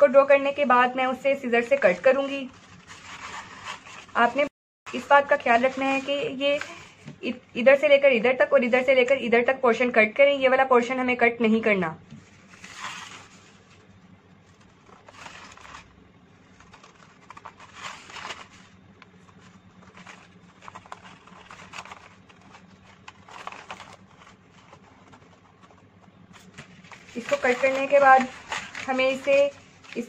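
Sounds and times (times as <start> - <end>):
paper rustling: 1.5 - 7.4, 12.1 - 30.0.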